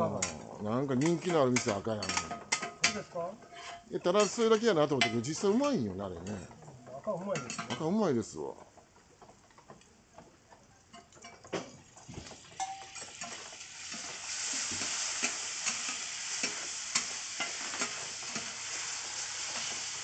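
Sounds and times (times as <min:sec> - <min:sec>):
metal spatulas scraping iron: 0:01.0 - 0:04.5
meat sizzling on griddle: 0:12.0 - 0:20.0.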